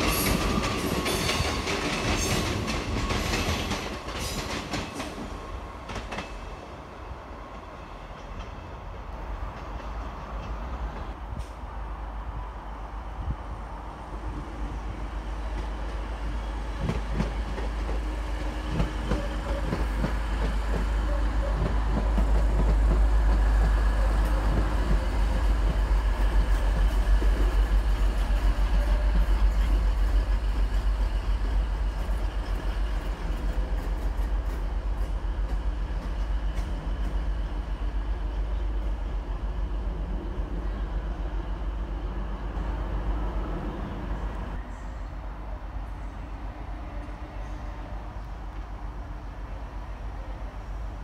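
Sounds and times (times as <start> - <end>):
diesel train passing: 0.0 - 51.0
train wheels clicking over rail joints: 16.8 - 37.9.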